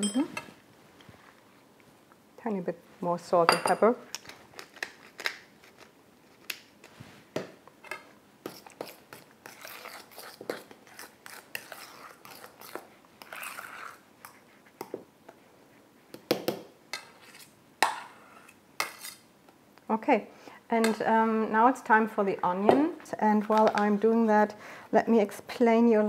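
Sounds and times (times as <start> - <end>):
cheese mashed and stirred: 8.0 - 19.3.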